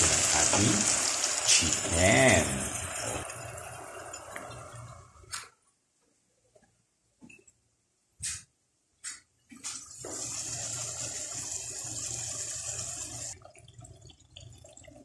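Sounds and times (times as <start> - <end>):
chicken sizzling in hot oil: 0.0 - 4.9, 10.0 - 13.4.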